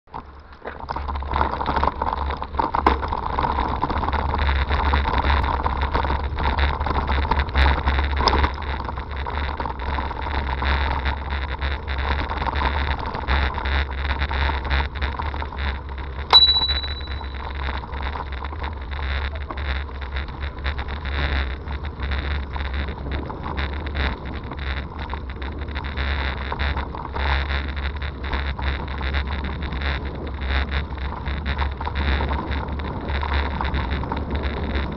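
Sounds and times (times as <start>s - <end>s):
bicycle tyres rumbling on gravel: 0.1s - 16.3s, 17.8s - 34.9s
bicycle bell ringing: 16.3s - 17.6s.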